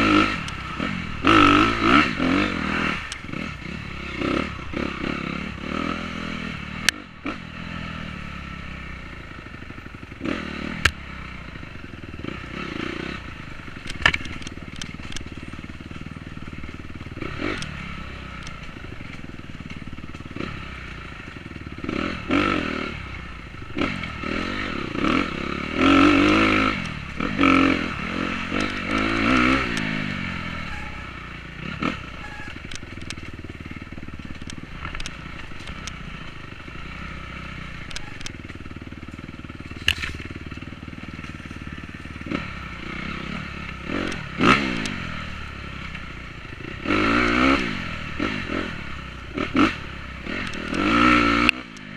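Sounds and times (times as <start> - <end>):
dirt bike engine revving: 0.0 - 51.9
clatter and scraping: 13.6 - 17.8, 28.5 - 36.7, 37.7 - 42.4.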